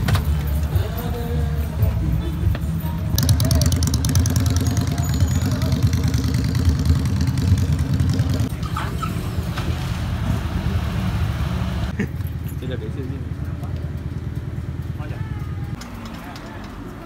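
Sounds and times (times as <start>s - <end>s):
motorcycle engine chugging: 0.0s - 9.2s, 11.9s - 17.0s.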